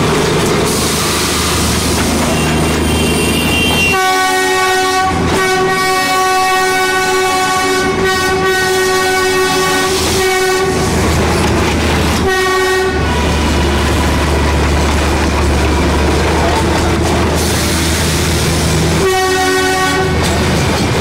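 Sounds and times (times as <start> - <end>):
locomotive engine rumble: 0.0 - 21.0
locomotive horn blasts: 1.0 - 11.0, 12.2 - 13.7, 19.0 - 20.3.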